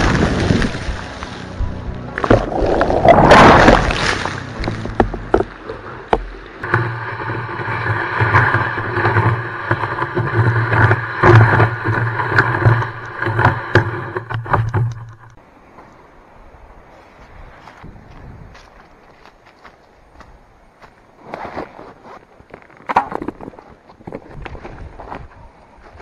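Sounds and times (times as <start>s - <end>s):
rushing whoosh of water: 0.0s - 14.6s.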